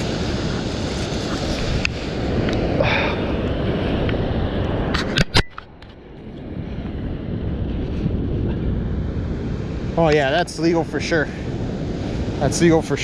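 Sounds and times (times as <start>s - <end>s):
wind buffeting microphone: 0.0s - 13.0s
surf: 6.6s - 13.0s.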